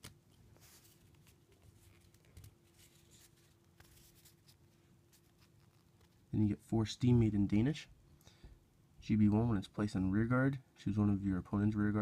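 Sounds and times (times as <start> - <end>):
paper cards rustling: 0.0 - 6.4
faint steady hum: 0.0 - 12.0.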